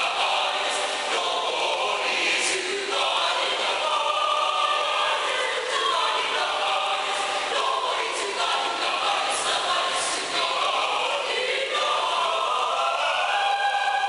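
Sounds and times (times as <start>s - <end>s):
mixed choir singing in harmony: 0.0s - 14.0s.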